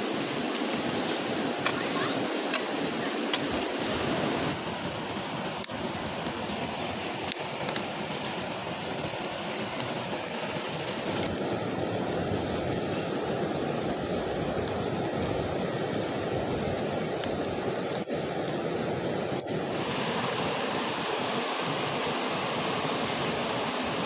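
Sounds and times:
wood fire crackling: 0:00.0 - 0:02.6, 0:03.3 - 0:19.9.

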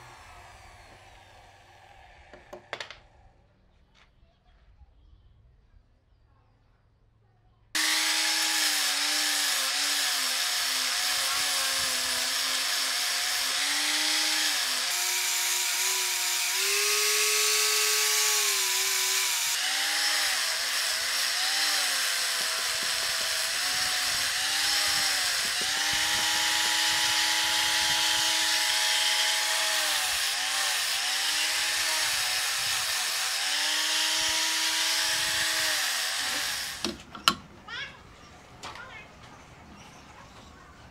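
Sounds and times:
angle grinder sanding wood: 0:00.0 - 0:02.8, 0:07.8 - 0:37.0.

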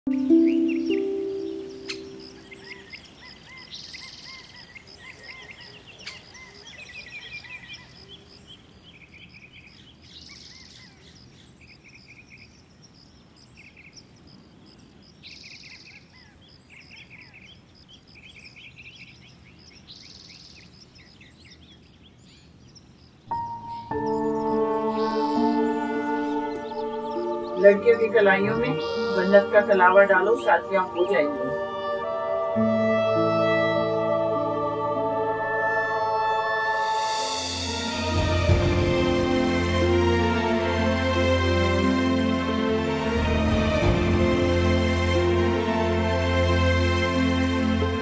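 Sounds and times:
held music note: 0:00.0 - 0:02.5
insect trill: 0:00.1 - 0:08.5, 0:22.8 - 0:43.0
small birds chirping: 0:00.1 - 0:32.2.

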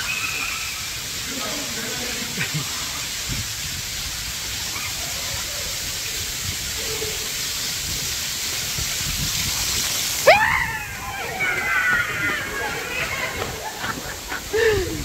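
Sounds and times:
waterfall rushing: 0:00.0 - 0:15.0
person crying out: 0:10.3 - 0:11.3.

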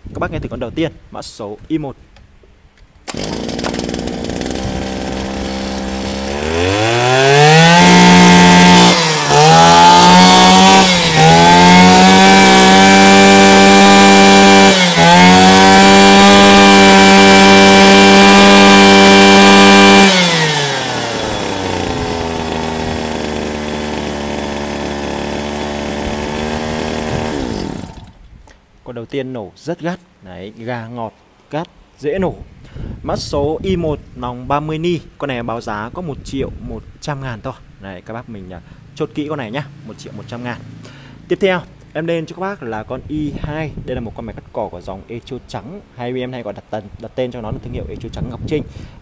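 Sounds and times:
brush cutter engine revving: 0:03.1 - 0:28.2.

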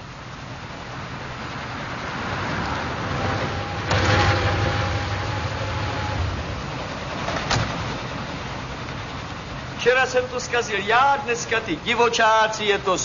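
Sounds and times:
car engine running: 0:00.1 - 0:09.8
brake squeal: 0:01.9 - 0:08.4.

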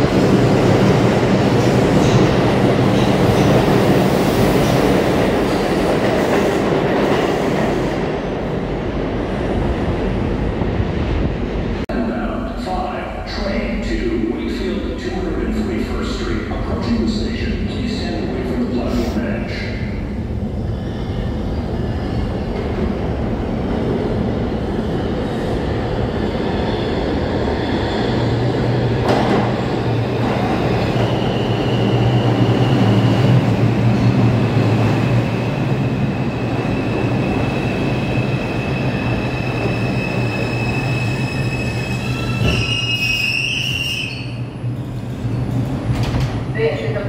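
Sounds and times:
train wheels rumbling on rail: 0:00.0 - 0:12.3, 0:14.0 - 0:47.0
high brake squeal: 0:39.4 - 0:44.4.

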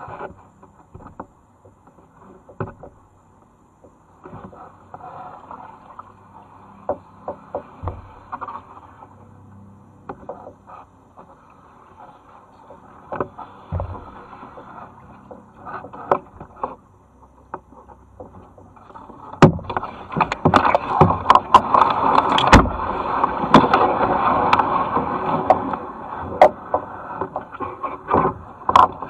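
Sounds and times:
kayak paddling: 0:00.0 - 0:29.0
branches scraping and snapping: 0:19.3 - 0:25.9.

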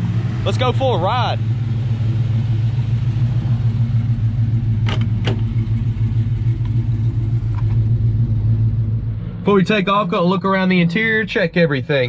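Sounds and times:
truck engine idling: 0:00.0 - 0:12.0
car door latch clicks: 0:04.8 - 0:05.5.

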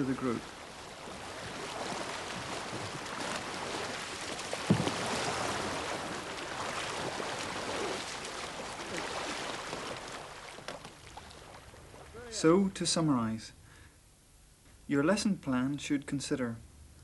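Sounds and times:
water sloshing: 0:00.0 - 0:12.3
kayak paddles splashing: 0:00.0 - 0:12.5.

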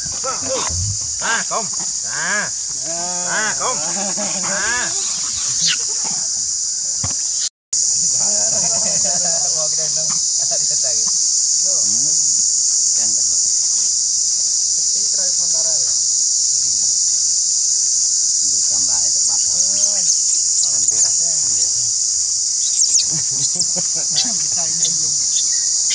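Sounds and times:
insect chorus drone: 0:00.0 - 0:25.9
faint rising and falling calls: 0:04.7 - 0:06.0, 0:22.6 - 0:25.9.

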